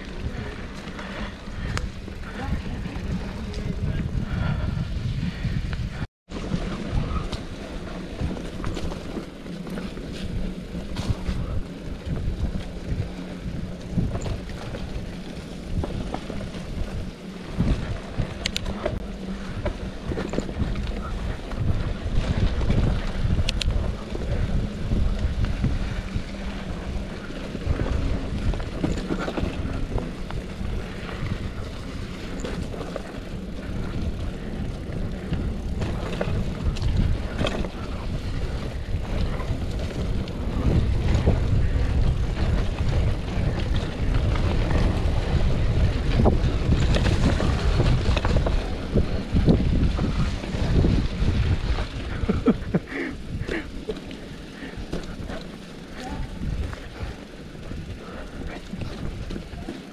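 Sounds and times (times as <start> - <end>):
bike clicks and rattles: 0.0 - 59.9
bike tyre noise: 0.0 - 59.9
wind on microphone: 0.0 - 59.9.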